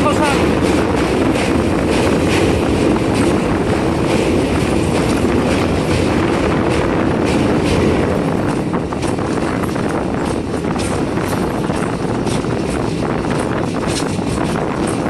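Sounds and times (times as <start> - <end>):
train wheels rumbling on rails: 0.0 - 15.0
wind buffeting microphone: 0.0 - 15.0.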